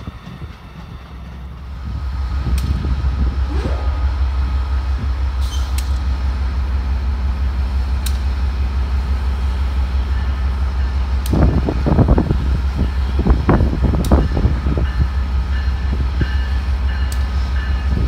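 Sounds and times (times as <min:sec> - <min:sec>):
diesel locomotive idling: 0:00.0 - 0:18.0
louder rumbling: 0:02.0 - 0:06.5.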